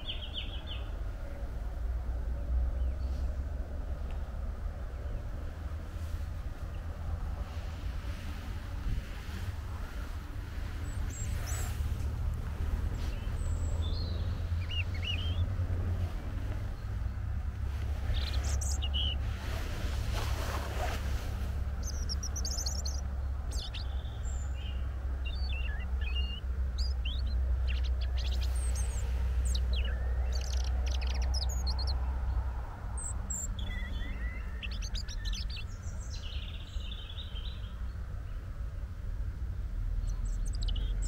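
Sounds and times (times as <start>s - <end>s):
robin singing: 0.0s - 1.5s, 10.7s - 15.6s, 16.6s - 19.4s, 21.6s - 38.4s, 39.9s - 41.0s
steady low rumble: 0.0s - 41.0s.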